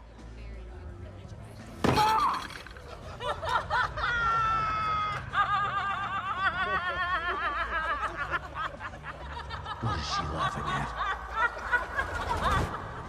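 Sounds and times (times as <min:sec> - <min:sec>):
woman laughing high-pitched: 0:03.2 - 0:09.0.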